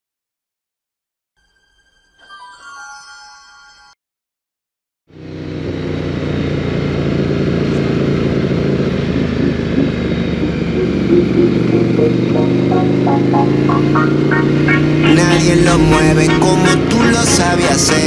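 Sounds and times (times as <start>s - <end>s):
music: 1.4s - 4.0s, 9.4s - 18.0s
motorcycle engine running: 5.1s - 18.0s.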